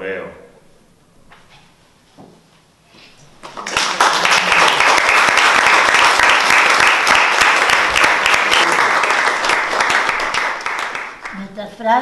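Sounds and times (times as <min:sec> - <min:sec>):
audience applauding: 0:03.4 - 0:11.5.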